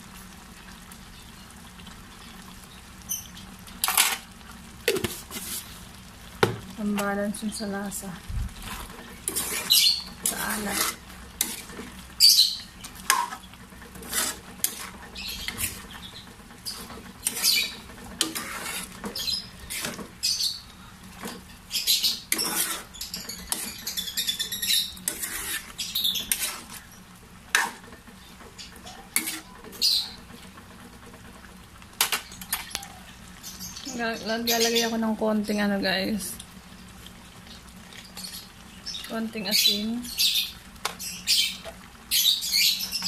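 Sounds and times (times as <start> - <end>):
wooden spatula scraping frying pan: 3.8 - 7.1, 8.5 - 20.3, 21.1 - 32.8.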